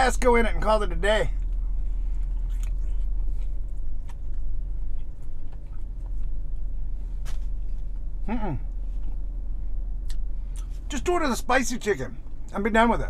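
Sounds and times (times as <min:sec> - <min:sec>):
low car cabin hum: 0:00.0 - 0:13.0
man chewing food: 0:01.3 - 0:10.9
soft mouth noises: 0:08.2 - 0:09.2.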